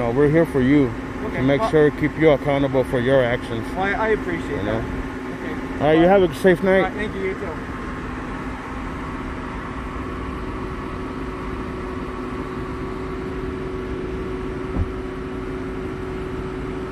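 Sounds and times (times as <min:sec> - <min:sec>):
car engine idling: 0:00.0 - 0:16.9
short thump: 0:14.7 - 0:15.1.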